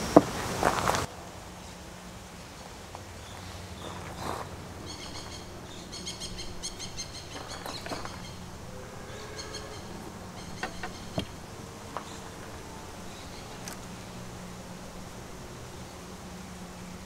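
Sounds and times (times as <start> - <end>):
high pulsed chirping calls: 3.6 - 17.0.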